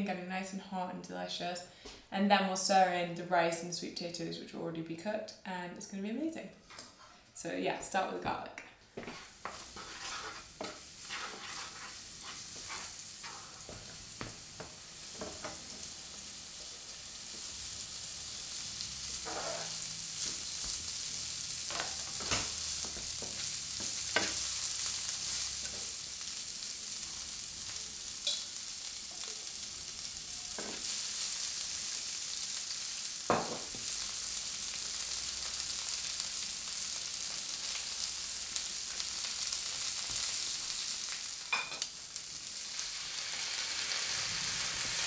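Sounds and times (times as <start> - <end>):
wooden spoon scraping pan: 9.0 - 13.8, 19.2 - 19.8
food sizzling in oil: 9.0 - 45.0.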